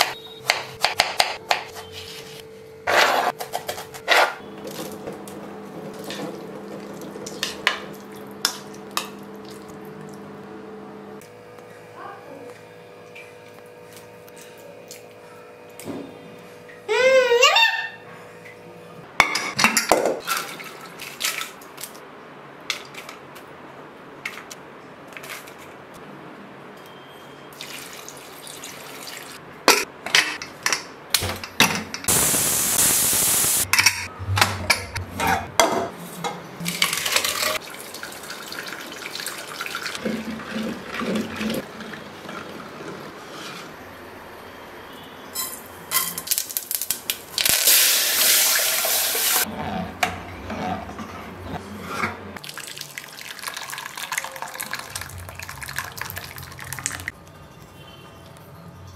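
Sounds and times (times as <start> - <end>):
oil sizzling loudly: 32.1 - 33.7, 45.4 - 49.5
pressure cooker hissing steam: 32.1 - 33.7, 47.6 - 49.4.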